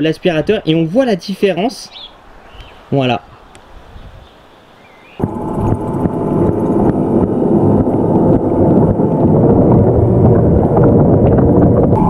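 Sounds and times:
pool cleaner rumbling underwater: 5.2 - 12.0.

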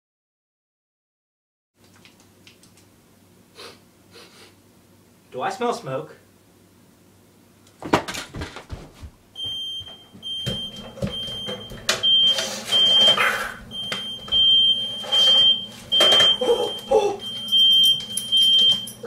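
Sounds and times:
knocks and bumps of handling: 7.8 - 12.1
smoke alarm beeping: 9.4 - 19.0.

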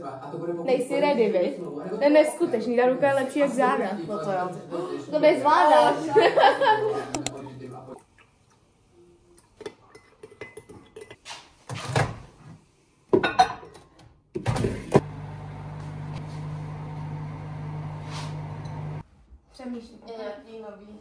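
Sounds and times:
kitchen clinks and knocks: 13.2 - 14.9
microwave humming: 14.5 - 19.0.

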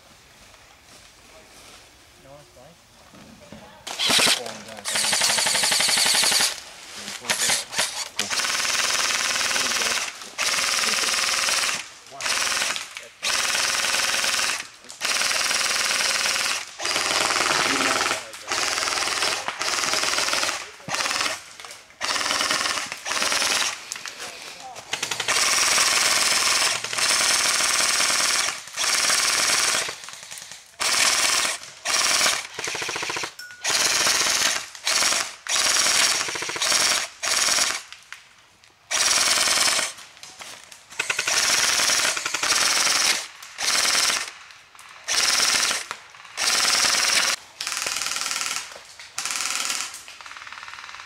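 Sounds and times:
airsoft rifles firing bursts: 3.9 - 6.6, 7.2 - 37.9, 38.9 - 40.0, 41.0 - 51.0.

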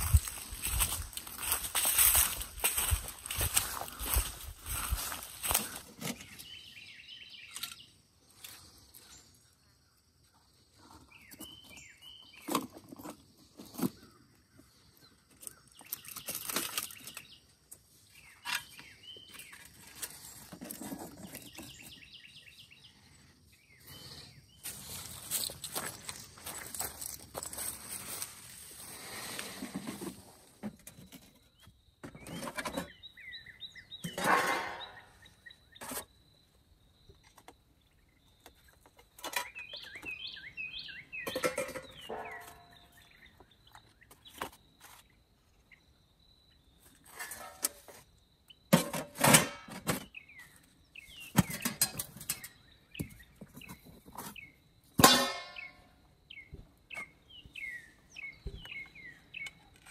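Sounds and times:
small birds chirping: 0.0 - 48.7, 49.9 - 59.9
metal lids clanking: 34.0 - 35.1, 41.2 - 42.7, 48.8 - 50.1, 51.3 - 52.5, 55.0 - 55.8.

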